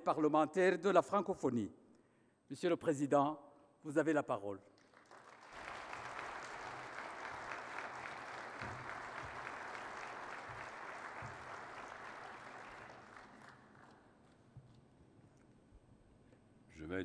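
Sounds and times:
audience applauding: 0:04.8 - 0:14.2.

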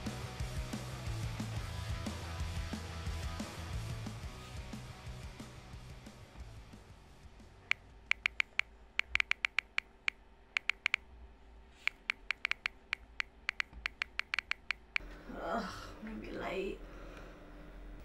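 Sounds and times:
phone keyboard clicks: 0:08.1 - 0:11.0, 0:11.8 - 0:15.0.

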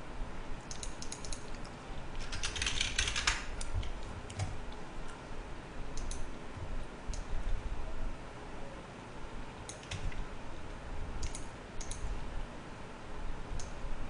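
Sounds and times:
keyboard typing: 0:00.7 - 0:04.6, 0:06.0 - 0:06.3, 0:09.6 - 0:10.2, 0:11.2 - 0:12.0.

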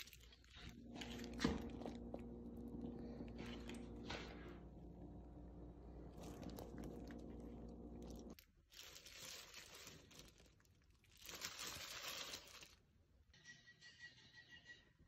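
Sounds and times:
plastic gloves crinkling: 0:00.0 - 0:04.4, 0:06.0 - 0:13.0
steady low hum: 0:00.1 - 0:08.4.

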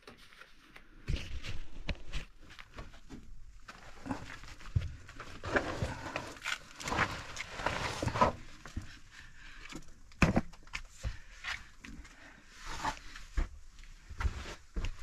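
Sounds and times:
footsteps on dirt and rock: 0:12.9 - 0:15.0.

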